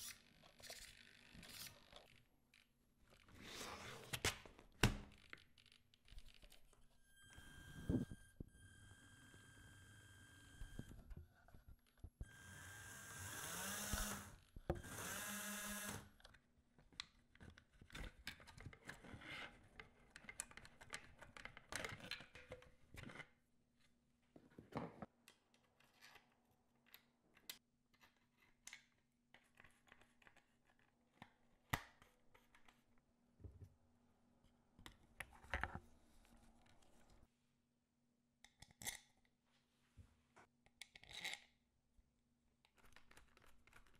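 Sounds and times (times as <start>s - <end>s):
small motors whirring: 12.2s - 16.0s
plastic parts clicking and rustling: 19.7s - 23.4s, 42.6s - 43.9s.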